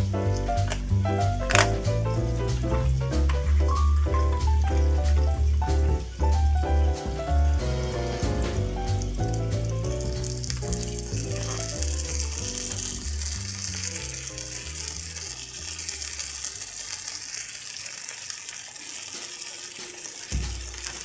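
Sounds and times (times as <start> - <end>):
background music: 0.0 - 16.2
food sizzling in a skillet: 0.0 - 21.0.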